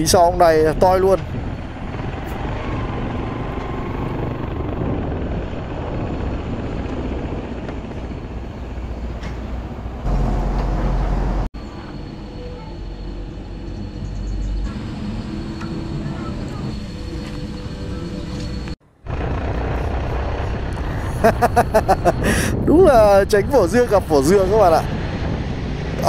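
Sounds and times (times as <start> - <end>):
wind noise on microphone: 0.0 - 11.5, 19.1 - 26.0
motorcycle engine rumbling: 0.9 - 11.8.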